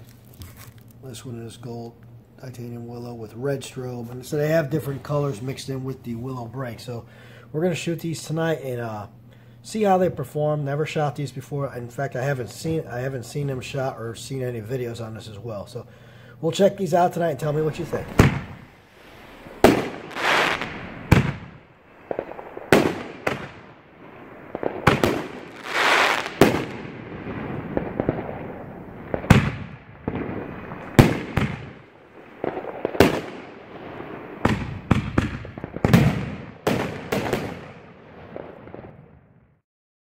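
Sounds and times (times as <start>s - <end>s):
fireworks booming: 16.0s - 39.5s
fireworks hiss: 16.6s - 29.5s.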